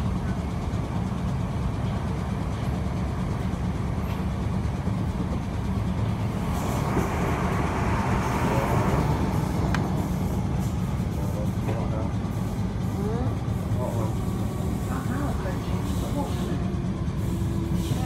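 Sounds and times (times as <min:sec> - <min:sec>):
train wheels rumbling on track: 0:00.0 - 0:18.0
rushing noise: 0:05.6 - 0:12.8.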